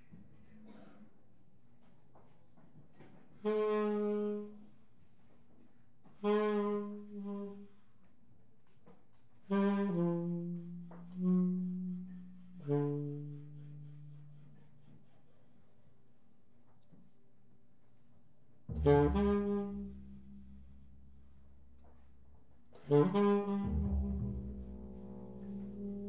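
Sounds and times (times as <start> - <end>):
tenor saxophone long notes: 3.4 - 4.7, 6.2 - 7.8, 9.5 - 14.6, 18.7 - 21.6, 22.7 - 26.0.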